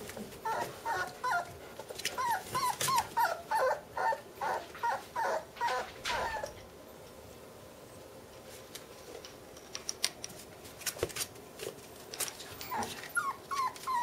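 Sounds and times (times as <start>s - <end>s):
puppies whimpering: 0.4s - 6.6s, 12.6s - 14.0s.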